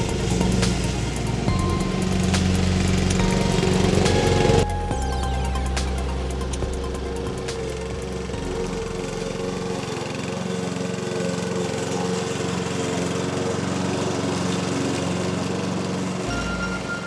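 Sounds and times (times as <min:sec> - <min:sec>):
low bass tone: 0:00.0 - 0:10.4, 0:16.3 - 0:17.0
lawn mower engine running: 0:00.0 - 0:17.0.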